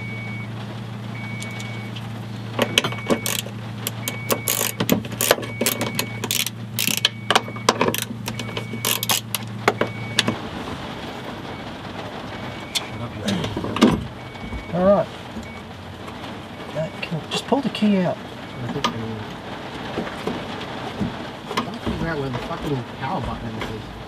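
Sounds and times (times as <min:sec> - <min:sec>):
metal clicks and clatters: 0:02.6 - 0:09.9
short repeating beep: 0:04.0 - 0:04.8, 0:05.5 - 0:07.6.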